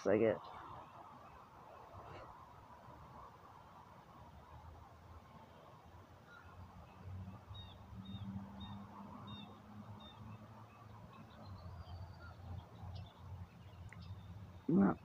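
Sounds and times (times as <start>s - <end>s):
bird chirping: 6.2s - 15.0s.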